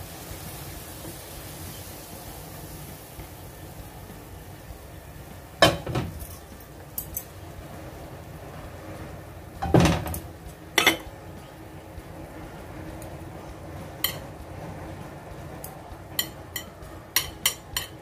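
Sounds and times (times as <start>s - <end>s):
cookware knocking: 5.6s - 6.2s, 16.2s - 18.0s
wok scraping plate: 13.6s - 18.0s.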